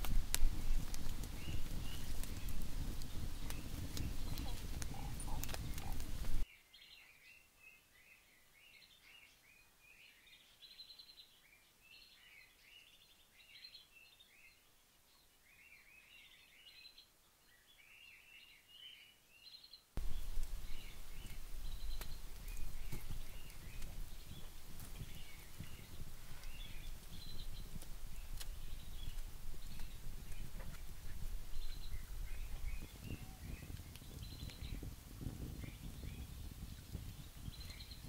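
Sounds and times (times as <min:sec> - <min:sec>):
wood fire rumbling and crackling: 0:00.0 - 0:06.5, 0:20.0 - 0:38.0
birds chirping: 0:00.0 - 0:38.0.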